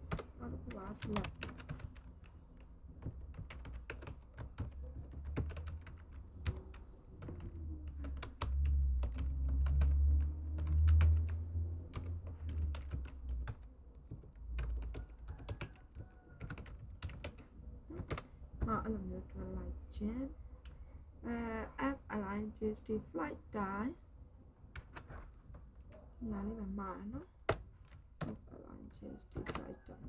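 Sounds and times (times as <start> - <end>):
typing on keyboard: 0.0 - 18.8, 24.8 - 25.2, 29.3 - 30.0.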